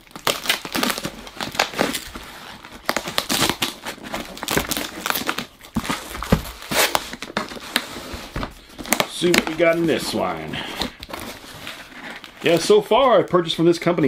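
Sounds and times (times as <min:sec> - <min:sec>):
knife slitting packing tape: 0:06.6 - 0:07.2.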